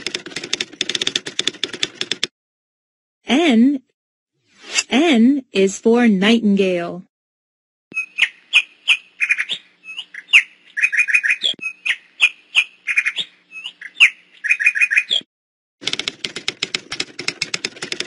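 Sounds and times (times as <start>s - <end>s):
songbird chirps and trills: 8.0s - 15.2s
fast dry clicking rattle: 15.8s - 18.0s.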